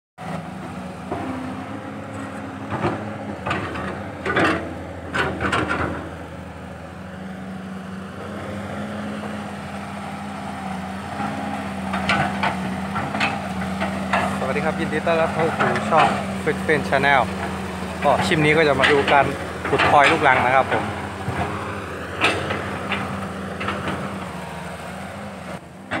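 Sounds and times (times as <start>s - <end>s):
excavator diesel engine running: 0.2s - 26.0s
bucket scraping earth and rock: 12.3s - 21.2s.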